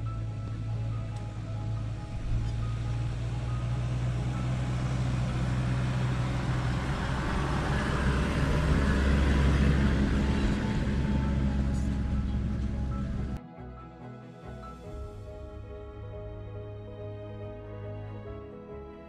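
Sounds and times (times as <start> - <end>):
truck engine passing: 0.0 - 13.4.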